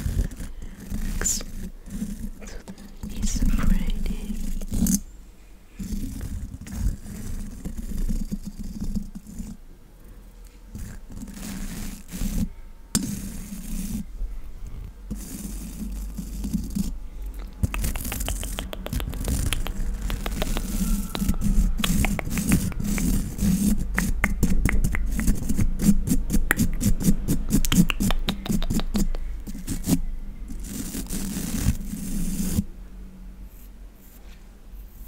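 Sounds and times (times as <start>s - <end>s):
brush scratching microphone grille: 5.8s - 9.6s, 10.8s - 14.1s, 15.1s - 17.0s, 17.6s - 32.7s.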